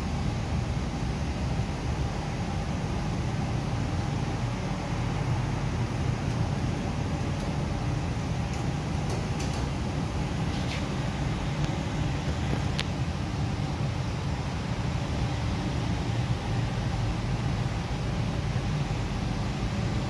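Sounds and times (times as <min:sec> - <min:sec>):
low indoor rumble: 0:00.0 - 0:20.0.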